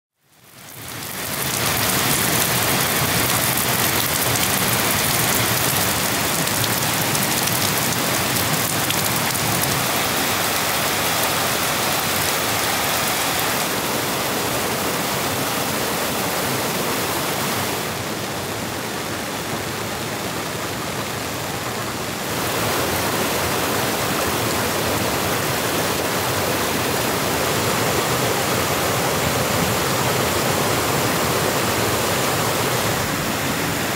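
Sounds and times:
steady rain falling: 0.2s - 33.9s.

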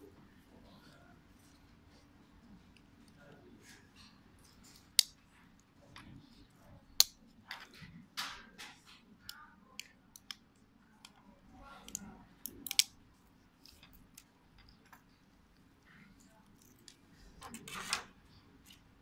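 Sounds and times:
metal tweezers clicking: 9.3s - 11.2s, 11.8s - 13.0s.

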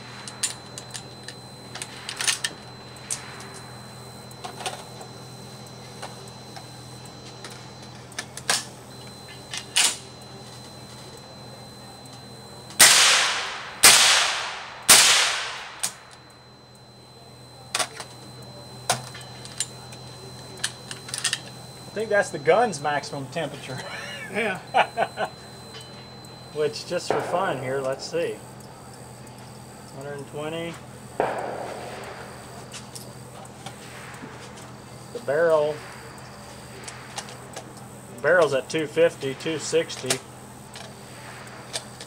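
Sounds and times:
suppressed gunshots: 12.8s - 15.8s, 31.2s - 32.7s
sharp clicks: 31.2s - 38.6s.

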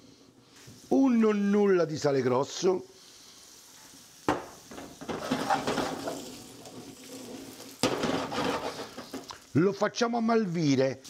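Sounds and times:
pan and utensil clatter: 4.3s - 9.4s
utensil scraping pan: 4.4s - 9.3s.

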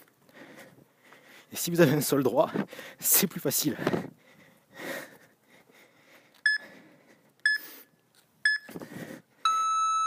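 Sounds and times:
heavy breathing: 0.2s - 1.6s, 2.5s - 3.0s, 3.8s - 8.0s, 8.7s - 9.4s
timer beeps: 6.4s - 6.7s, 7.4s - 7.7s, 8.4s - 8.7s, 9.4s - 10.0s.

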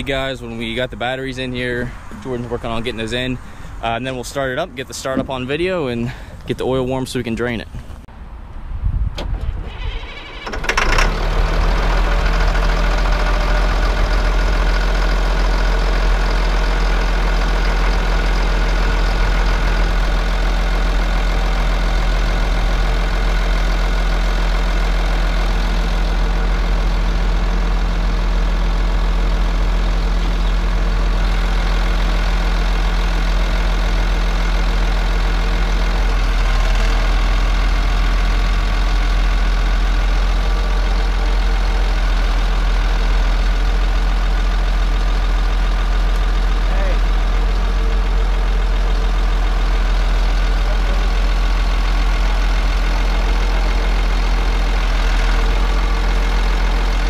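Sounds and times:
diesel engine idling: 9.5s - 57.0s.

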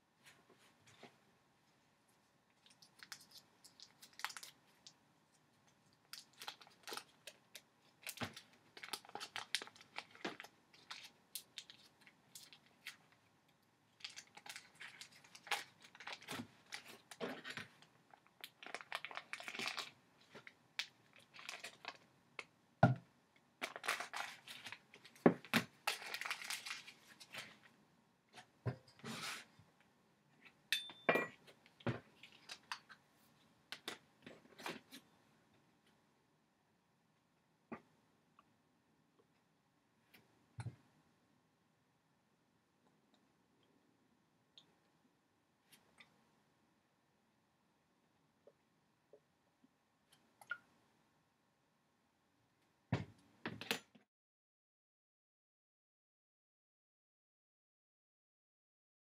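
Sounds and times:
butter wrapper crinkling: 2.6s - 5.0s, 6.0s - 13.0s, 14.0s - 22.0s, 23.6s - 27.5s.

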